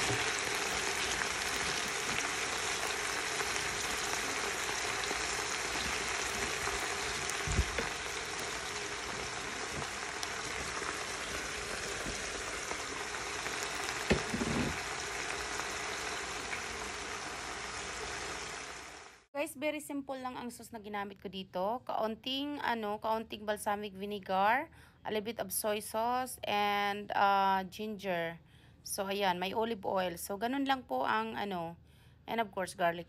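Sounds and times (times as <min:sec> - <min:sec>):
lettuce sizzling in a pan: 0:00.0 - 0:19.2.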